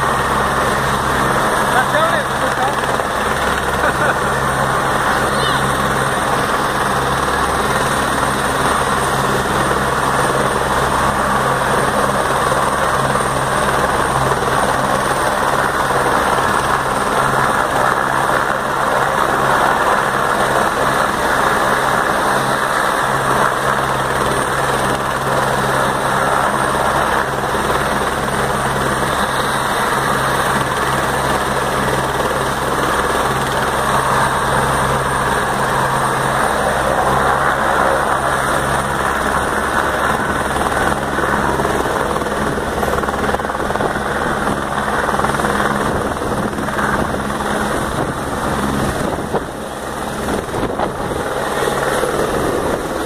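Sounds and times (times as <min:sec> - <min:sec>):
helicopter turbine and rotor noise: 0:00.0 - 0:53.0.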